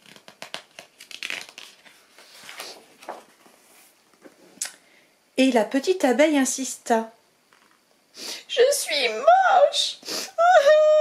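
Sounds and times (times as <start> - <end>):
book pages rustling: 0.0 - 4.4.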